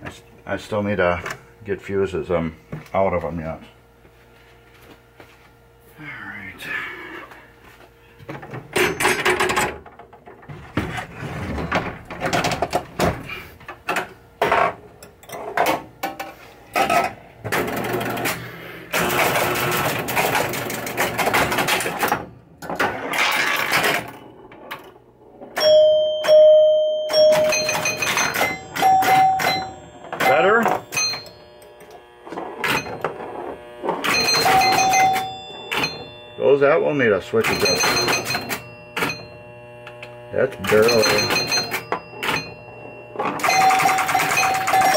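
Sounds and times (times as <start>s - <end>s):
pinball chime ringing: 8.8s - 9.8s, 19.0s - 24.8s, 25.5s - 33.2s, 34.0s - 39.7s, 40.3s - 44.9s.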